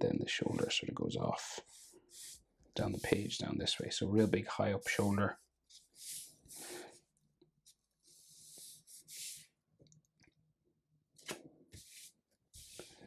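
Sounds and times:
marker scratching on paper: 1.6 - 5.0, 5.7 - 6.8, 7.7 - 9.5, 11.7 - 13.0.

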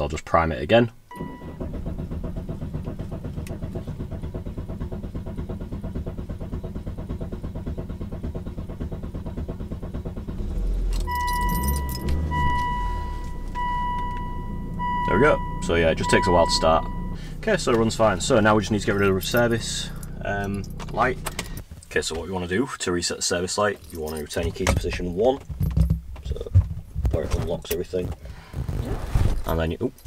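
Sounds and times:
diesel engine cranking: 0.9 - 30.0
car warning chime: 1.1 - 1.8, 11.0 - 21.3
diesel engine running: 1.1 - 22.2.

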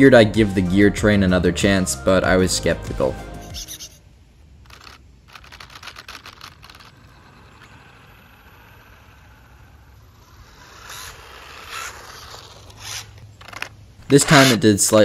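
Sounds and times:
gears rasping: 3.4 - 4.0, 4.6 - 14.8
electric motor whirring: 4.6 - 14.6
plastic gears clicking rapidly: 4.6 - 14.6.

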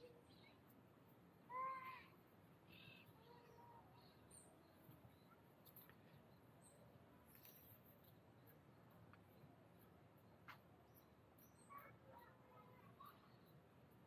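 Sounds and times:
faint high chirps: 9.2 - 14.0.

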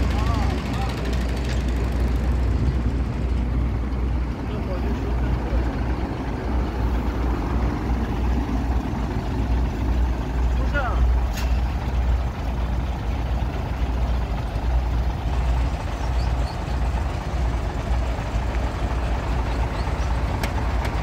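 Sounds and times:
diesel truck engine idling: 0.0 - 21.0.

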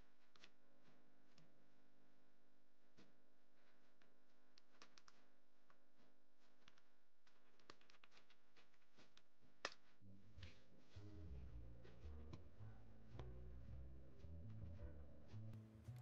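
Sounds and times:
computer keyboard and mouse clicks: 7.5 - 8.4.

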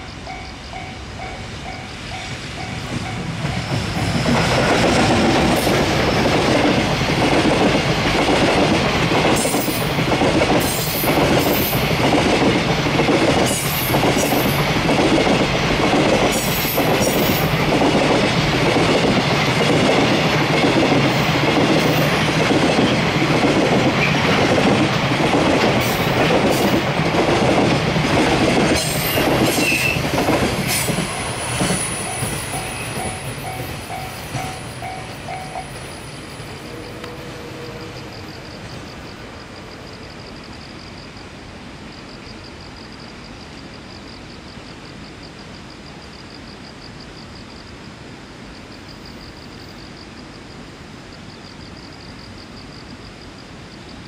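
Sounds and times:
level crossing warning bell: 0.0 - 3.7
freight train passing: 0.0 - 45.3
wheels clacking over rail joints: 2.6 - 35.8.

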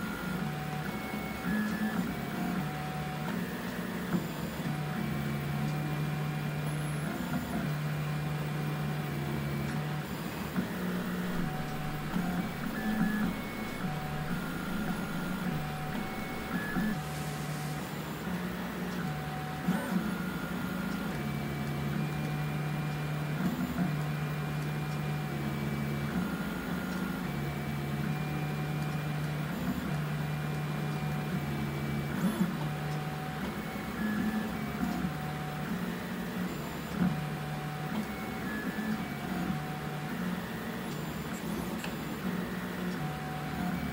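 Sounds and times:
stepper motors humming: 10.9 - 17.0
fan hiss: 11.0 - 18.0.

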